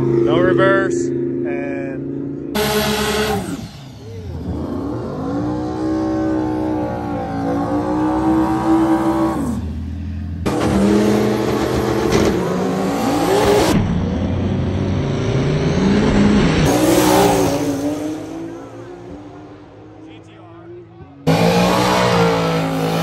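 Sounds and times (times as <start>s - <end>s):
car engines revving: 0.0s - 23.0s
cars launching at full throttle: 2.5s - 20.0s, 21.2s - 23.0s.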